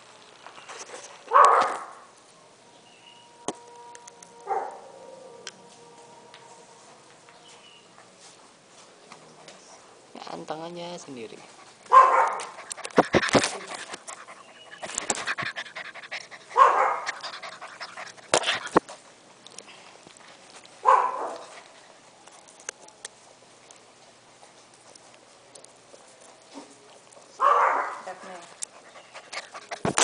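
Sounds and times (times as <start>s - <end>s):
puppies panting: 11.2s - 19.2s, 24.3s - 30.0s
knocks and scrapes on camera: 12.8s - 14.0s.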